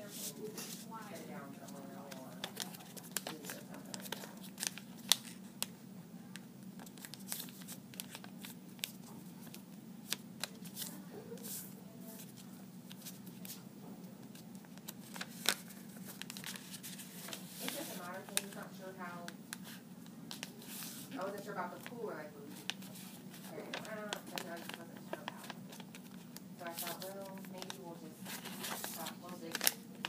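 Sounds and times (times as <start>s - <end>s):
paper rustling: 0.0s - 5.4s, 14.3s - 18.7s, 19.6s - 29.8s
steady low hum: 0.0s - 30.0s.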